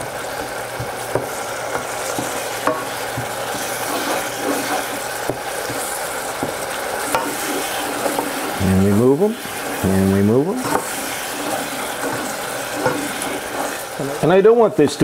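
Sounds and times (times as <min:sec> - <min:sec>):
simmering liquid sizzling: 0:00.0 - 0:15.0
spoon stirring wet mash: 0:00.4 - 0:14.0
spoon scraping metal saucepan: 0:01.2 - 0:06.0, 0:06.9 - 0:14.0.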